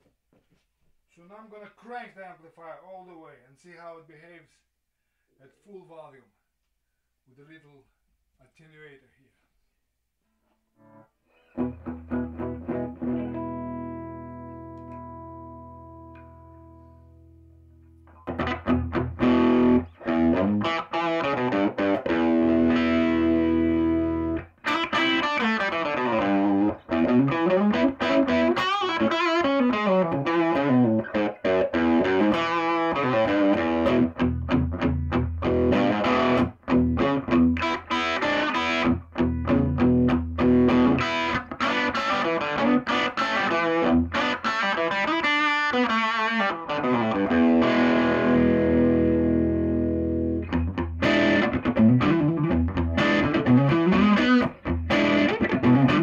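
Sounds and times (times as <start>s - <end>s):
electric guitar through tube amplifier: 11.6s - 16.8s, 18.1s - 56.0s.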